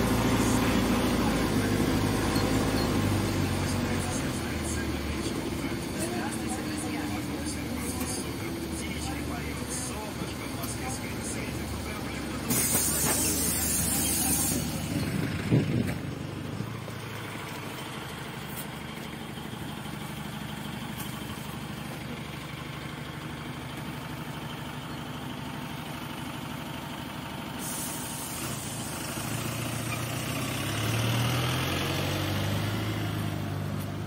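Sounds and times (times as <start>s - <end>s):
bus diesel engine idling: 0.0s - 34.0s
loud air hiss: 12.5s - 14.9s, 27.6s - 29.0s.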